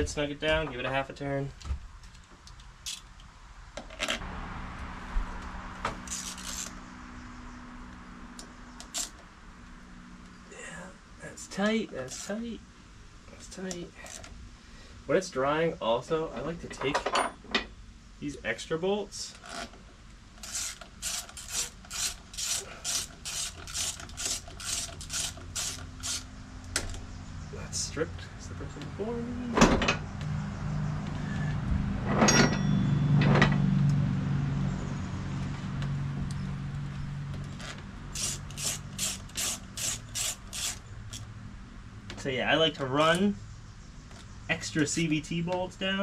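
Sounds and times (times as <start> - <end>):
ratchet wrench clicking: 6.1 - 6.8, 8.8 - 9.2, 12.1 - 12.3, 20.4 - 26.8, 37.6 - 41.3
metal clinks: 32.2 - 33.5.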